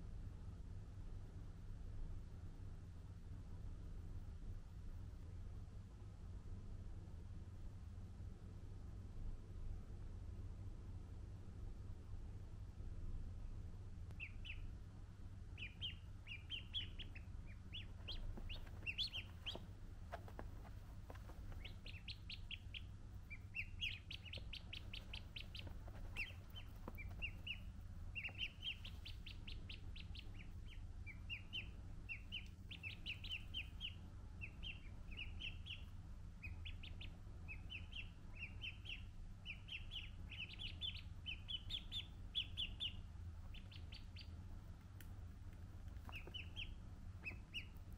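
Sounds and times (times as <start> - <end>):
low steady hum: 0.0 - 47.9
ducklings peeping: 14.1 - 14.8, 15.4 - 47.9.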